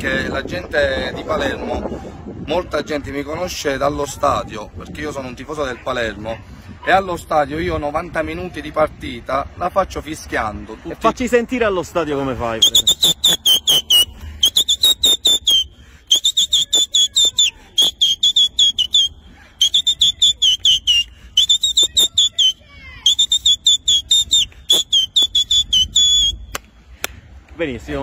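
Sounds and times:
man whistling shrill notes: 0:12.6 - 0:26.6.

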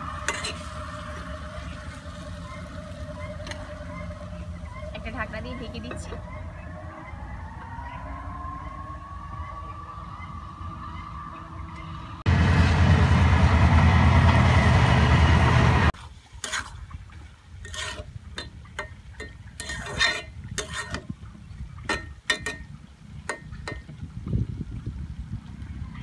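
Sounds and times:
metal spatula scraping frying pan: 0:00.2 - 0:00.8, 0:16.4 - 0:16.7, 0:17.6 - 0:18.1, 0:19.6 - 0:21.1
loud rushing noise: 0:12.2 - 0:16.0.

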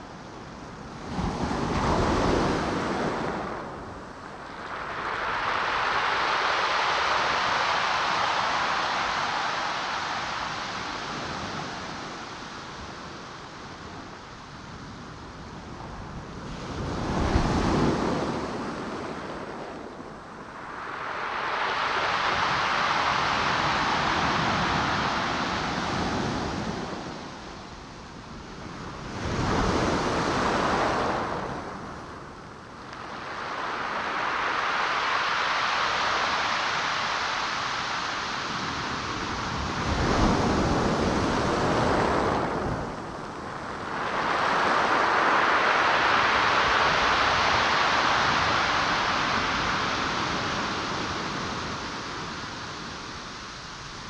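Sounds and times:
waves washing onto shore: 0:00.0 - 0:54.0.

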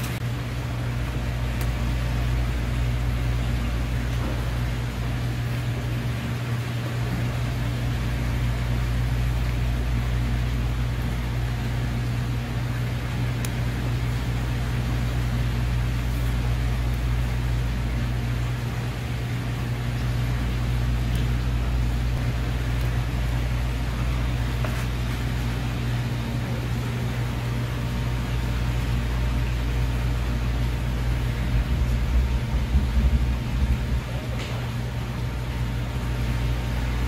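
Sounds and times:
low mechanical hum with hiss: 0:00.0 - 0:37.0.

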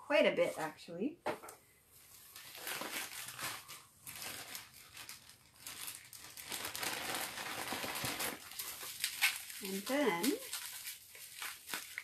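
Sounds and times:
bubble wrap crinkling: 0:01.9 - 0:12.0.

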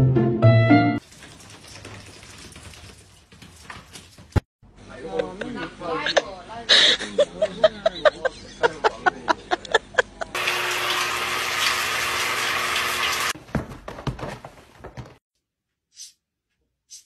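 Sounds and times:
shower water running: 0:01.0 - 0:04.3, 0:10.4 - 0:13.4.

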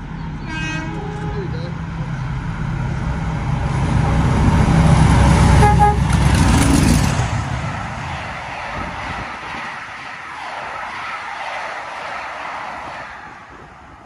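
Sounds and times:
diesel locomotive engine rumble: 0:00.0 - 0:14.0
train wheel noise: 0:00.0 - 0:14.0
train horn: 0:00.4 - 0:01.4, 0:05.5 - 0:06.1.

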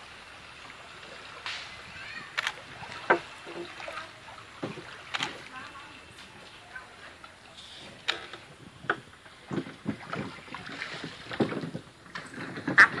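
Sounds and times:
oar strokes splashing water: 0:00.0 - 0:13.0
wood knocking on wood: 0:03.1 - 0:03.7.

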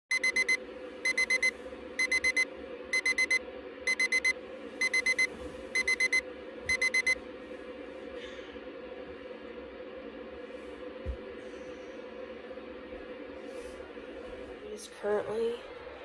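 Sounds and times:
alarm clock beeping: 0:00.1 - 0:07.2
low hum: 0:00.1 - 0:16.0.

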